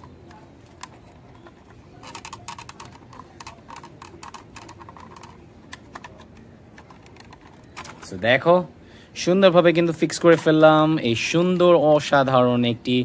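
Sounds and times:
plastic toy parts clicking: 0.0 - 8.2.

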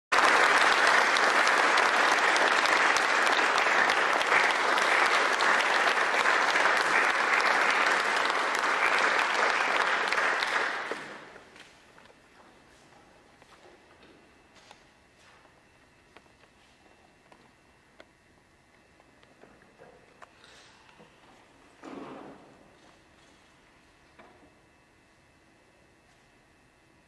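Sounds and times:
audience applauding: 0.1 - 11.4.

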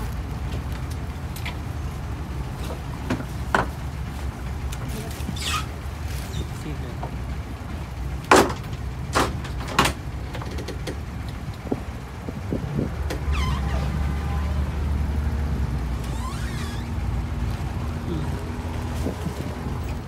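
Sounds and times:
boat engine rumbling: 0.0 - 20.0
brief squeaks: 5.3 - 6.5, 13.2 - 13.9, 16.0 - 17.0.

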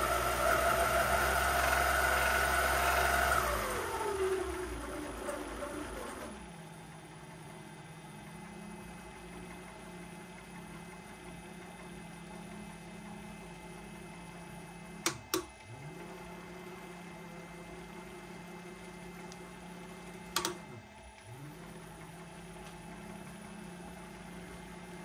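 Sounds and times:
lathe motor humming: 0.0 - 25.0
toggle switch clicks: 15.0 - 15.5, 20.3 - 20.7.

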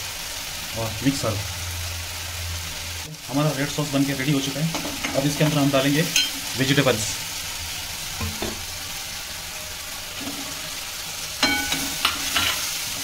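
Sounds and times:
sauce sizzling in a pan: 0.0 - 13.0
spatula stirring vegetables: 8.0 - 13.0
metallic clink against pan: 11.4 - 12.6.

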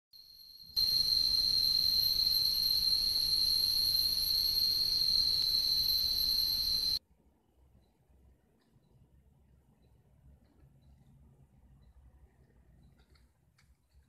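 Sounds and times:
high-pitched insect drone: 0.2 - 7.0.

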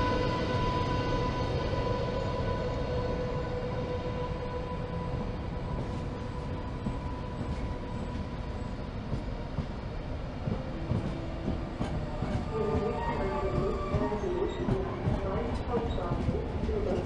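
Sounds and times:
train rumbling past: 0.0 - 17.0
train wheel clicks: 10.5 - 17.0.

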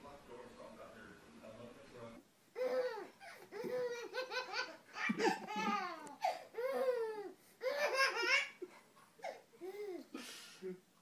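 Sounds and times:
baby laughing and squealing: 2.6 - 10.0.

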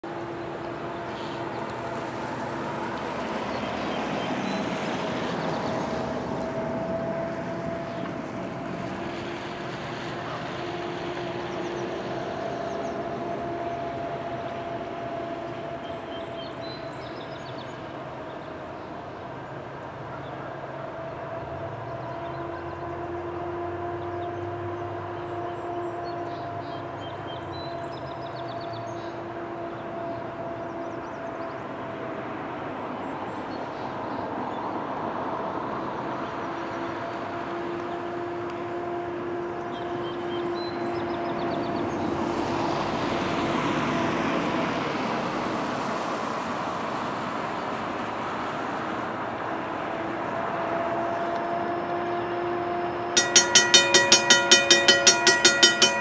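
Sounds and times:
diesel locomotives droning: 0.0 - 56.0
deep train rumble: 53.2 - 56.0.

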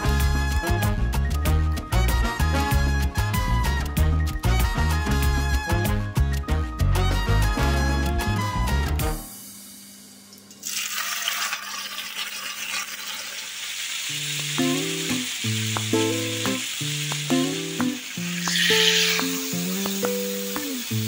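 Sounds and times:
background music with bass line: 0.0 - 9.3
meat sizzling in hot oil: 9.2 - 21.0.

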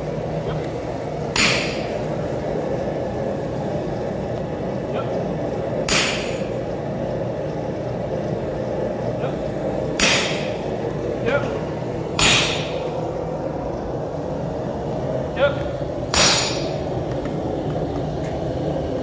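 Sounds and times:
workshop noise: 0.0 - 19.0
sledgehammer clanging on metal: 1.3 - 1.9, 12.2 - 12.8, 16.1 - 16.8.

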